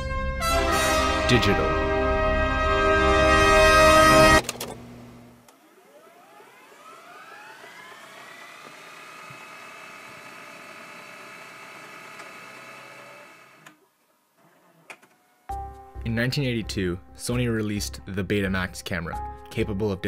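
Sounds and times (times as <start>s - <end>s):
motor whine spinning up: 4.4s - 13.6s.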